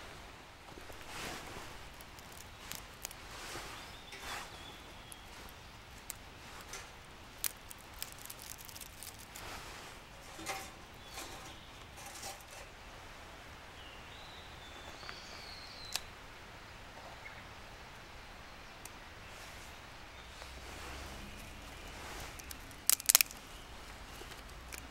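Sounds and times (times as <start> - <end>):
hands handling metal stove and twigs: 0.7 - 12.8, 18.8 - 24.9.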